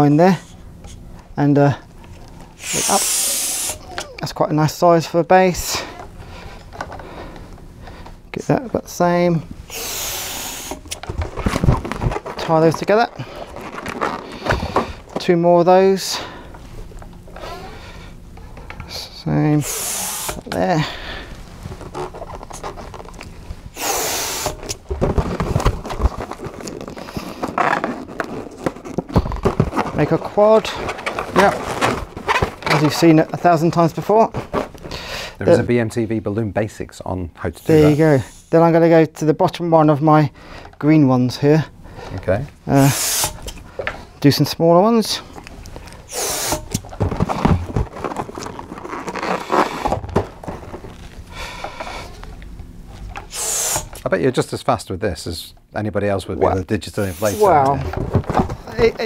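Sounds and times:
balloon pump air rush: 0:02.6 - 0:04.2, 0:09.6 - 0:12.4, 0:17.4 - 0:18.0, 0:19.6 - 0:23.1, 0:23.7 - 0:32.8, 0:37.6 - 0:38.6, 0:42.7 - 0:43.7, 0:46.0 - 0:50.0, 0:53.2 - 0:54.0, 0:57.0 - 0:57.6
latex balloon squeaking: 0:02.6 - 0:04.4, 0:09.6 - 0:15.0, 0:17.3 - 0:18.0, 0:19.6 - 0:20.7, 0:21.7 - 0:33.4, 0:37.6 - 0:38.5, 0:42.7 - 0:43.7, 0:45.9 - 0:52.3, 0:53.0 - 0:54.1, 0:56.4 - 0:57.9.

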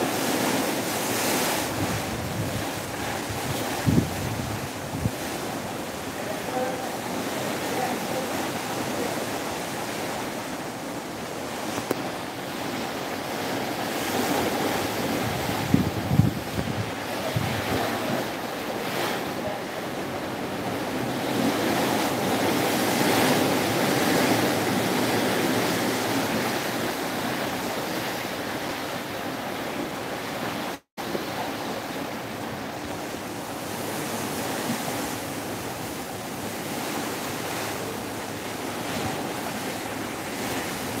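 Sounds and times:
wind buffeting microphone: 0:00.0 - 0:28.8
water splashing along boat hull: 0:00.0 - 0:41.0.

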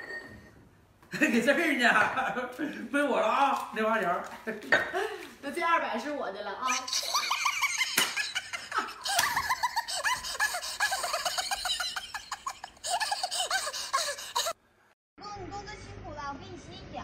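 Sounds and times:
woman laughing: 0:06.7 - 0:14.6.

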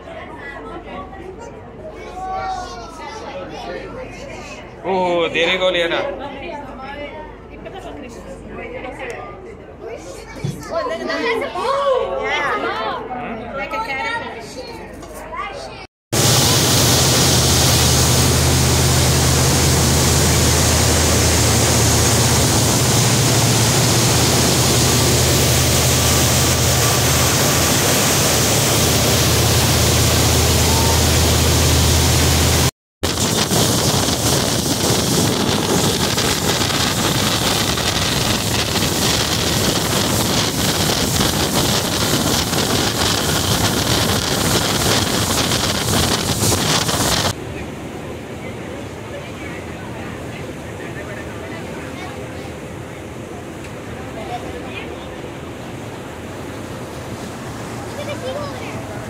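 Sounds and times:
wind buffeting microphone: 0:16.2 - 0:47.4
boat engine drone: 0:16.2 - 0:59.0
rushing wake water: 0:16.2 - 0:59.0.

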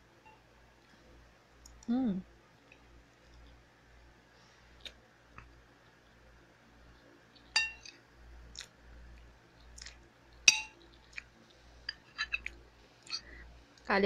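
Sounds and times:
chewing: 0:06.8 - 0:13.4
metal spoon clinking on dish: 0:07.6 - 0:07.9, 0:10.5 - 0:10.8, 0:11.9 - 0:12.5.

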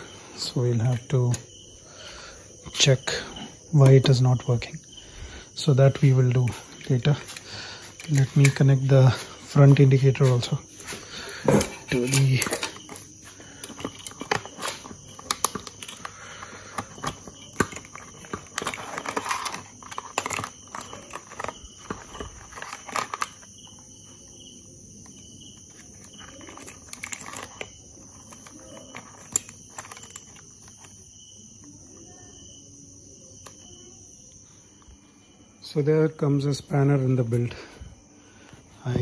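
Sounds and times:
crickets chirping: 0:00.0 - 0:39.0
plastic connectors clicking: 0:11.5 - 0:23.5, 0:25.1 - 0:30.9.

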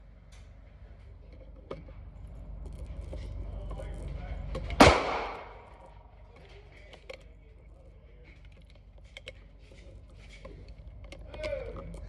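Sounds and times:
gunshot echoing indoors: 0:04.8 - 0:05.8.

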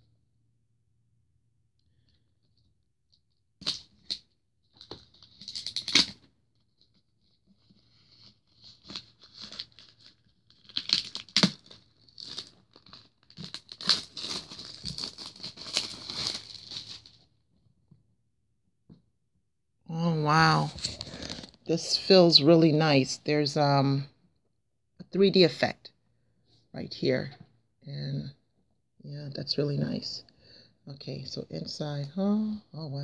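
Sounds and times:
plastic shrink-wrap tearing and crinkling: 0:04.8 - 0:06.3, 0:07.6 - 0:17.3.

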